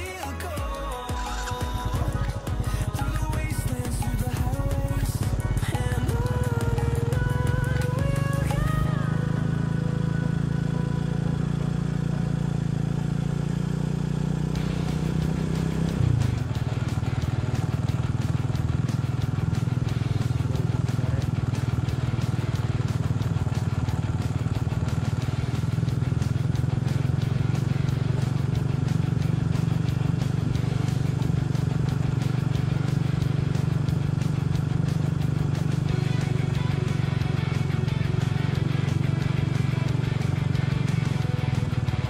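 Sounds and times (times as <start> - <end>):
background melody: 0.0 - 11.2
small motorcycle engine running: 1.2 - 42.0.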